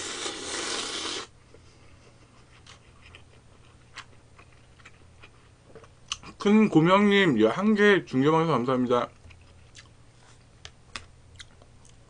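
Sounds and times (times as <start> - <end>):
person slurping noodles: 0.0 - 1.3
quiet chewing: 1.6 - 6.4, 9.1 - 12.0.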